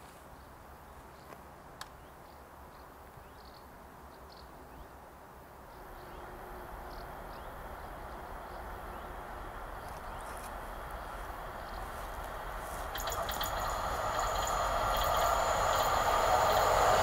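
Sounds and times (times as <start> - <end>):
low hiss and rumble: 5.2 - 17.0.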